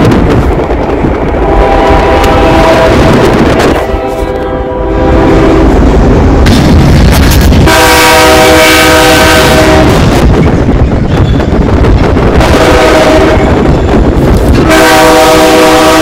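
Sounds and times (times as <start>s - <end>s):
loud distorted noise: 0.0s - 16.0s
train air horn chord: 1.4s - 3.1s, 3.8s - 5.8s, 7.6s - 10.1s, 12.4s - 13.6s, 14.6s - 16.0s.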